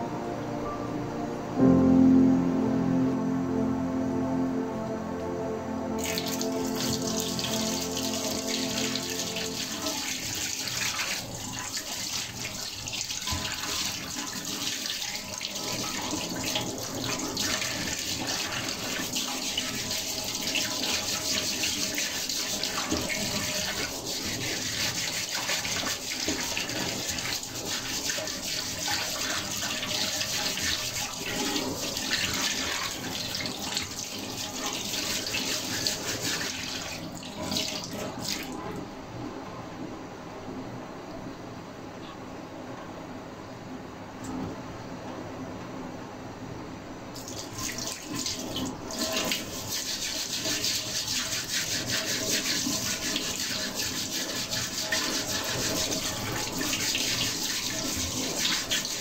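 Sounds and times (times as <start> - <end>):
hands rinsing and rubbing: 6.0 - 38.6, 47.2 - 59.0
tap water running into sink: 6.0 - 38.7, 47.2 - 59.0.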